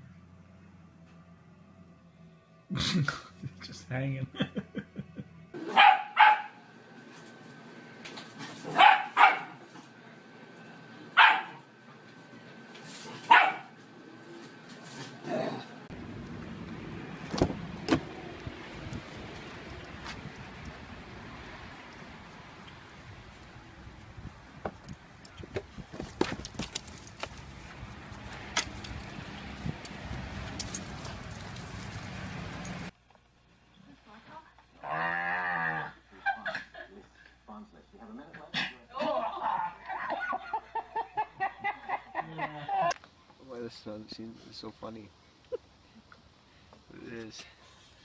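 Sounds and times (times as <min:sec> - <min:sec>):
dog barking: 0:05.6 - 0:06.6, 0:08.7 - 0:09.6, 0:11.2 - 0:11.6, 0:13.3 - 0:13.8
metal collar tags jingling: 0:28.6 - 0:32.9.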